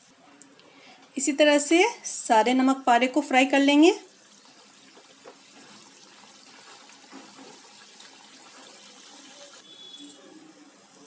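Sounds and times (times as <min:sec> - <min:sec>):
oil sizzling and bubbling: 0:01.6 - 0:11.0
wooden spatula stirring: 0:04.0 - 0:09.6.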